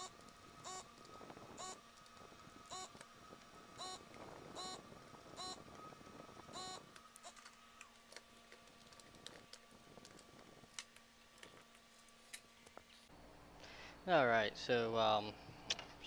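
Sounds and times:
desoldering pump buzz: 0.0s - 12.8s
low steady hum: 0.0s - 16.0s.

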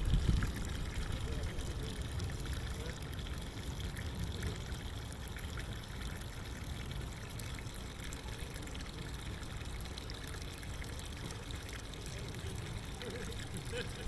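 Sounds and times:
water trickling and lapping: 0.0s - 14.0s.

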